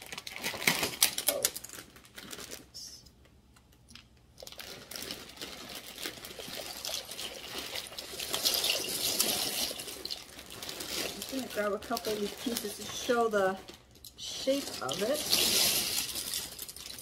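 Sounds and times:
plastic bag crinkling: 0:00.0 - 0:03.0, 0:03.9 - 0:17.0
dry pasta rattling into pot: 0:05.0 - 0:17.0.

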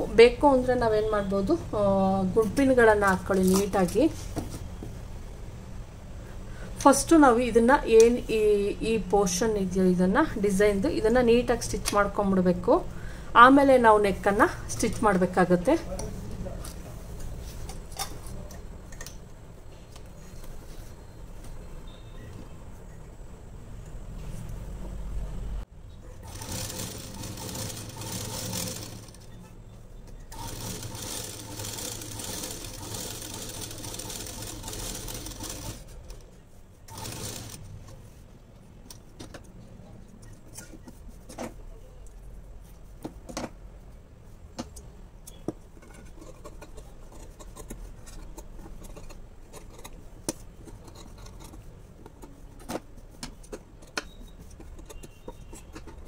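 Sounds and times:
sewing machine stitching: 0:26.2 - 0:29.3, 0:30.3 - 0:36.2, 0:36.9 - 0:37.7.

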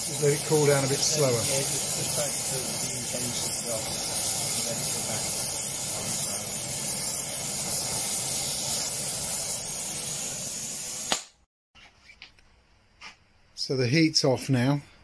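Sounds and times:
gas torch flame hissing: 0:00.0 - 0:11.4
torch shut-off pop: 0:00.0 - 0:11.4.

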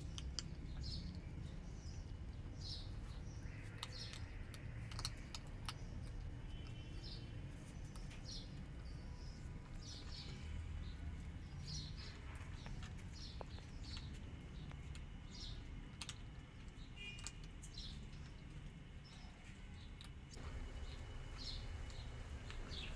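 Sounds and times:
cats crunching dry kibble: 0:00.0 - 0:22.9
bird chirps: 0:19.1 - 0:22.9.

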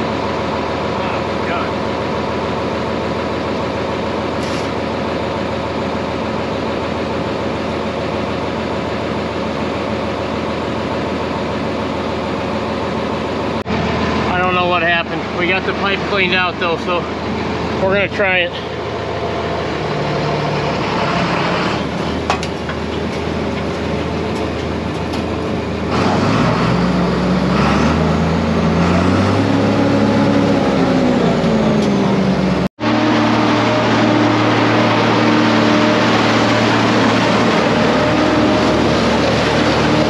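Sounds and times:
tractor engine revving: 0:00.0 - 0:40.0
forage blower rushing noise: 0:25.7 - 0:40.0.

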